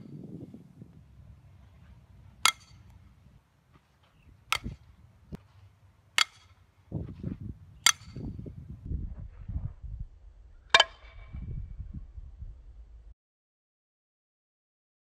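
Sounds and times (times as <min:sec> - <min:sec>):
bat striking softball: 0:02.1 - 0:03.1, 0:04.4 - 0:04.9, 0:06.1 - 0:06.7, 0:07.8 - 0:08.4, 0:10.7 - 0:11.5.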